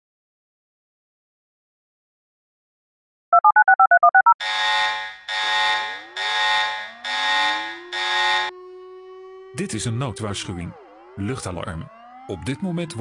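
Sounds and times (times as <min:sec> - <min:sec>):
harsh buzzing alarm tone: 0:04.4 - 0:12.4
air-raid siren: 0:04.4 - 0:13.0.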